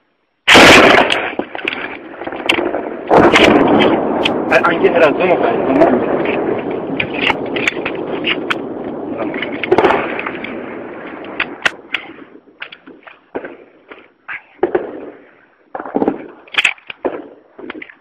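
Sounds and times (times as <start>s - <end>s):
gunshots with echo: 0.5s - 14.0s, 14.6s - 17.9s
loud rumble: 2.2s - 11.9s.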